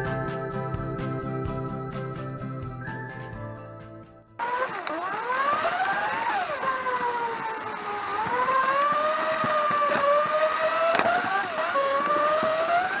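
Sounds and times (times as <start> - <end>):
slot car motor whining: 4.4 - 13.0.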